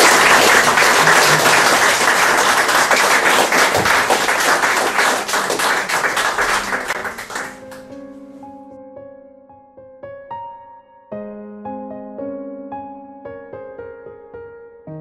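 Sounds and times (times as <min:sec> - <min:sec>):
audience applauding: 0:00.0 - 0:07.9
soft piano music: 0:06.9 - 0:15.0.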